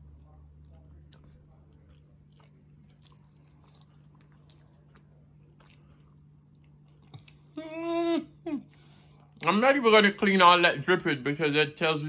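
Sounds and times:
low steady hum: 0.0s - 12.0s
faint chewing: 0.2s - 7.6s.

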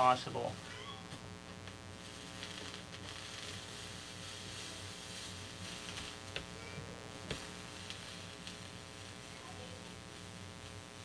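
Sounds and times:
electrical hum: 0.0s - 11.0s
soldering iron ticks and crackles: 1.4s - 3.6s, 7.2s - 9.0s.

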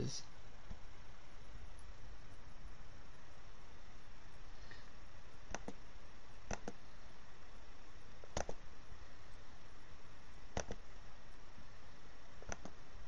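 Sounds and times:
steady low hiss: 0.0s - 13.0s
computer mouse clicks: 5.4s - 5.8s, 6.4s - 6.8s, 8.2s - 8.7s, 10.5s - 10.9s, 12.4s - 12.8s.

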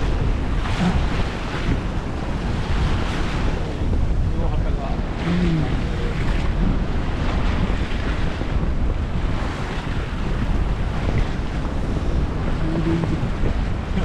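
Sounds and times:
water rushing along hull: 0.0s - 14.0s
wind buffeting microphone: 0.0s - 14.0s.

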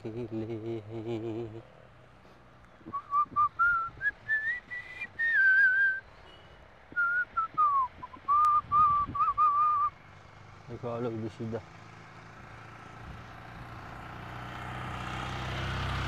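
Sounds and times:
person whistling a tune: 2.8s - 6.0s, 6.9s - 10.0s.

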